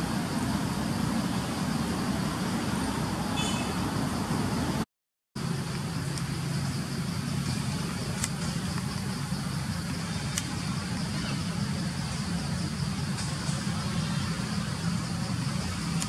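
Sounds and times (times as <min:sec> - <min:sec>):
low mechanical hum: 0:05.4 - 0:16.0.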